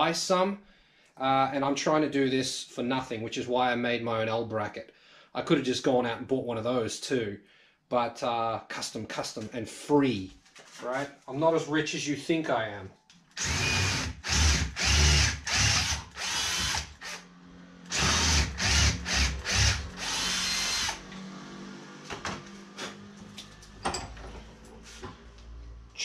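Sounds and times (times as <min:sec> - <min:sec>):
cordless drill drilling: 0:13.4 - 0:21.2.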